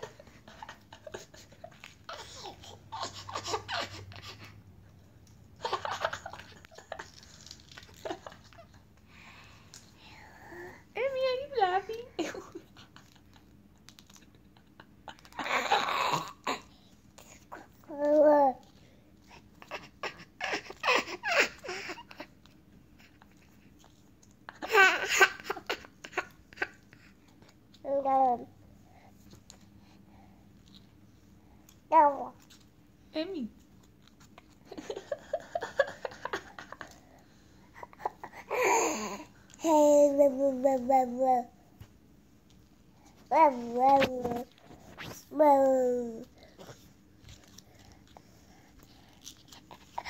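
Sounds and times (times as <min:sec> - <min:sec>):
baby laughing: 0:00.0 - 0:04.6, 0:05.6 - 0:08.8, 0:19.6 - 0:22.3.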